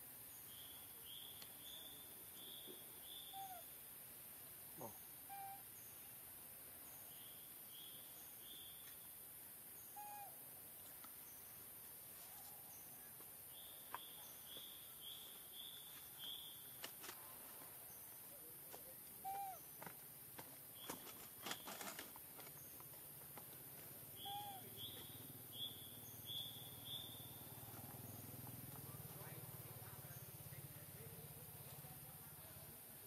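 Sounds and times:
lower bird call: 0.5 - 3.7, 4.8 - 5.8, 9.8 - 10.4, 19.2 - 19.7, 24.2 - 27.8.

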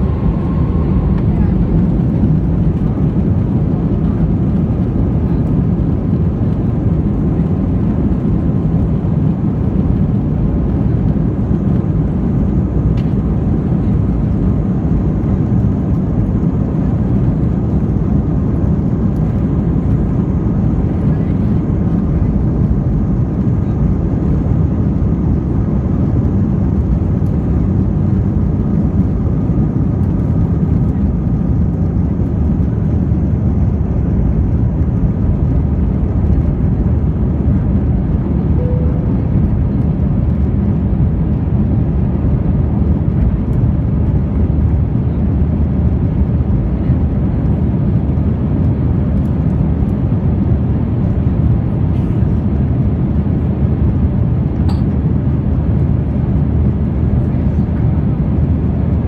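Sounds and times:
airliner jet engine rumble: 0.0 - 59.0.

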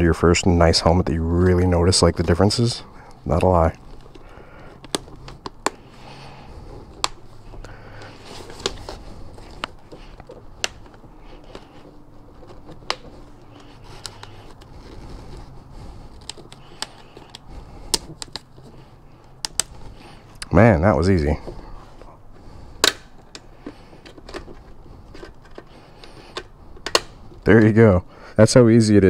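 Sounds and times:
fabric and foam rustling: 0.0 - 22.8
sharp plastic clicks: 3.9 - 5.9, 12.5 - 14.7, 16.1 - 18.5, 19.2 - 19.8, 25.2 - 27.2.

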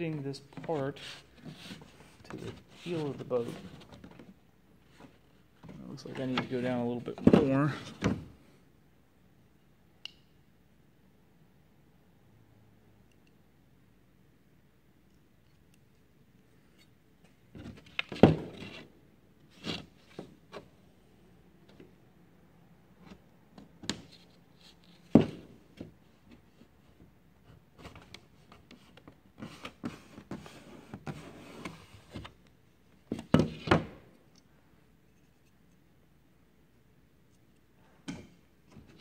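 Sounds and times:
wood scraping and rubbing: 0.5 - 4.2.

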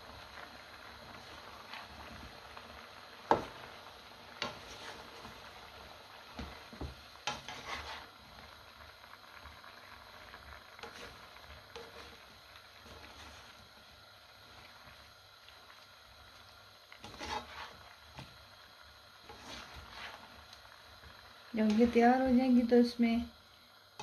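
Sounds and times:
vegetables sizzling: 0.0 - 24.0
spatula knocking and scraping wok: 3.2 - 3.6, 4.4 - 5.3, 6.4 - 8.1, 17.0 - 18.3, 19.2 - 20.2.

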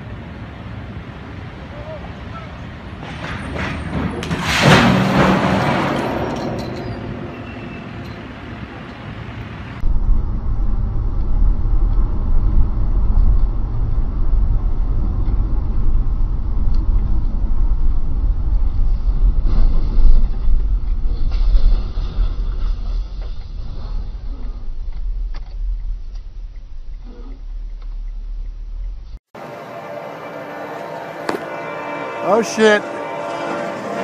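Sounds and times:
steel pipe crashing to ground: 3.0 - 8.3
car road rumble inside cabin: 9.8 - 21.4, 22.3 - 29.2.

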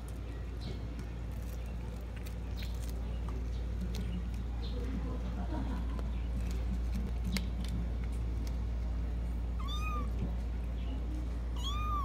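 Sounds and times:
steady low hum: 0.0 - 12.0
cat meowing: 9.6 - 10.2, 11.6 - 12.0.

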